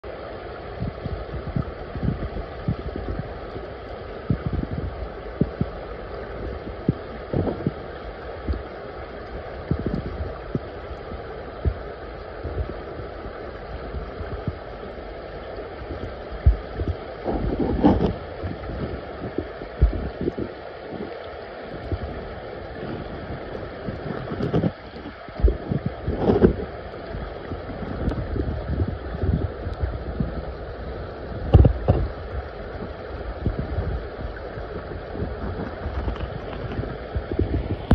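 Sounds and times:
muffled creek water flowing: 0.0s - 37.9s
low underwater thumps and knocks: 4.3s - 5.7s, 6.8s - 7.8s, 9.7s - 10.7s, 15.9s - 20.5s, 22.8s - 30.4s, 31.4s - 32.4s, 33.4s - 34.4s, 35.0s - 37.9s.

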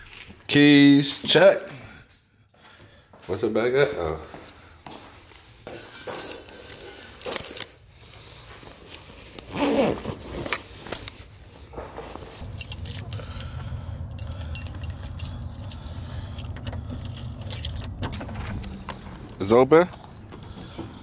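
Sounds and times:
keys jangling: 6.0s - 8.2s, 12.2s - 20.4s
steady low rumble: 12.4s - 20.6s.

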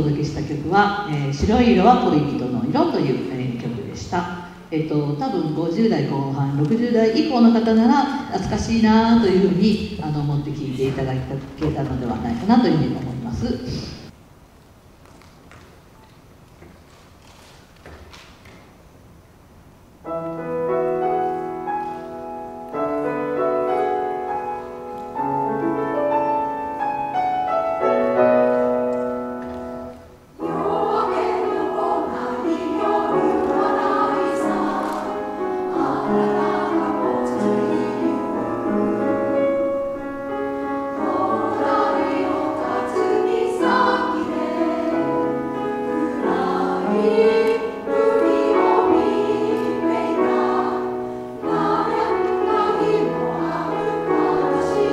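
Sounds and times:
grand piano playing: 0.0s - 14.2s, 20.0s - 54.9s
women's chorus singing in harmony: 30.4s - 39.8s, 40.8s - 54.9s.

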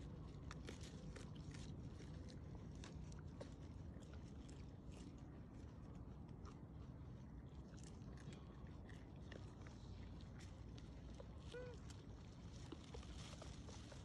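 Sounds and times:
low steady hum: 0.0s - 14.0s
dry leaves crackling: 11.4s - 14.0s.

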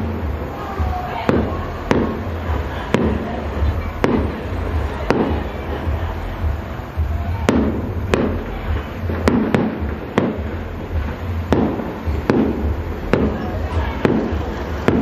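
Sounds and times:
fireworks exploding: 0.0s - 15.0s
low rumble: 0.0s - 15.0s.

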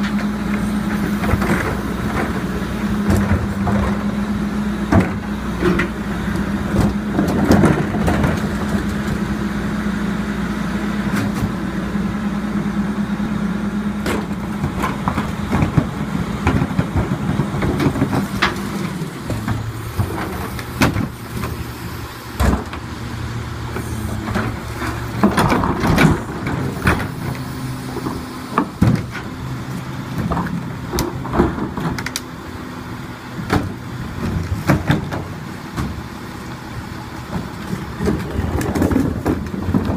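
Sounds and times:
garbage truck engine hum: 0.0s - 39.9s
plastic carts clanking and banging: 6.7s - 8.8s, 23.8s - 27.4s, 30.1s - 32.2s, 33.4s - 36.0s, 37.3s - 39.9s.

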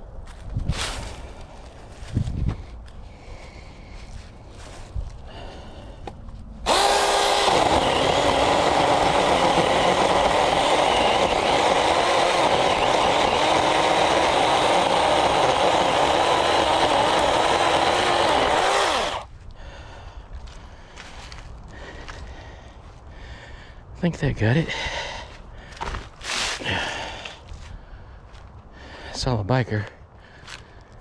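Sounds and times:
chainsaw cutting wood: 6.6s - 19.3s.

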